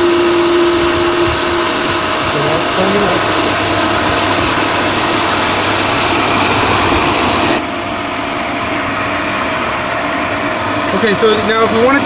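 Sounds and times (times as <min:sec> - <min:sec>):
water churning in strainer: 0:00.0 - 0:07.6
pool pump running: 0:00.0 - 0:12.0.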